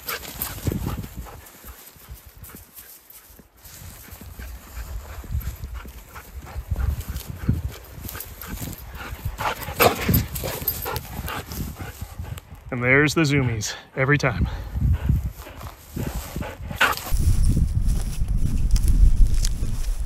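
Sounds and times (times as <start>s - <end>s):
running footfalls in dry grass: 0.0s - 12.7s, 15.1s - 20.0s
dry stems rustling: 15.7s - 20.0s.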